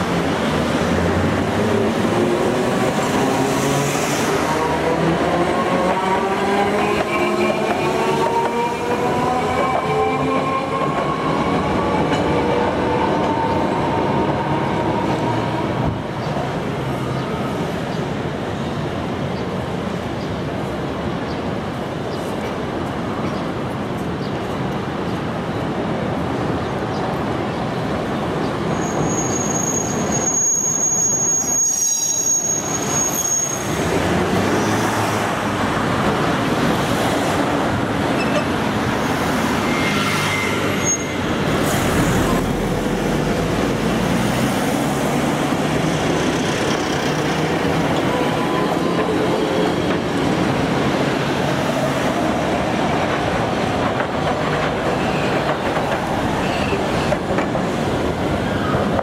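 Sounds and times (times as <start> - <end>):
streetcar rumbling on track: 0.0 - 59.0
wheels squealing: 28.6 - 34.0, 39.4 - 42.4.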